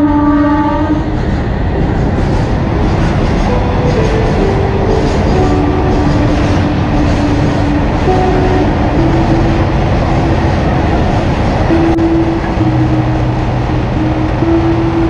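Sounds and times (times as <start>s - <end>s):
train wheels rumbling on rails: 0.0s - 15.0s
faint humming tones: 3.5s - 15.0s.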